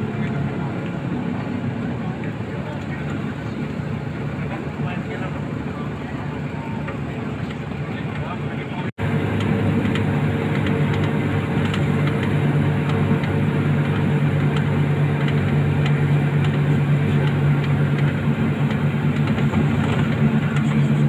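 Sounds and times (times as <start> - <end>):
bus engine hum: 0.0 - 21.0
road and tyre noise: 0.0 - 21.0.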